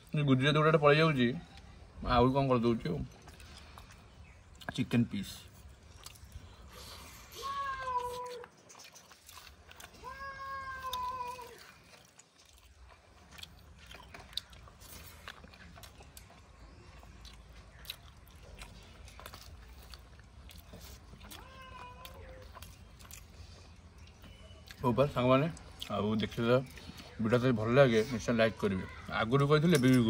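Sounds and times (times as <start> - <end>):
clicks of eating: 3.0 - 27.4
cat meowing: 10.0 - 11.6, 21.3 - 22.4.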